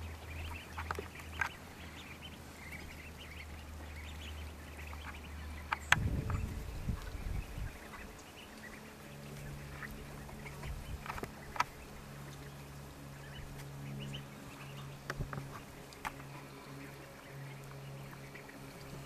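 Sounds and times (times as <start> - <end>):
ducklings peeping: 0.0 - 19.0
low rumbling: 0.0 - 19.0
steady low hum: 0.0 - 19.0.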